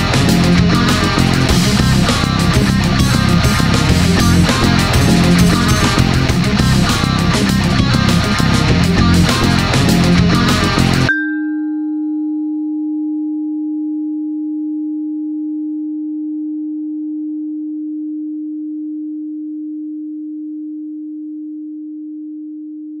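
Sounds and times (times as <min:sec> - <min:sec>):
heavy guitar rock music: 0:00.0 - 0:11.1
held low pure tone: 0:00.0 - 0:23.0.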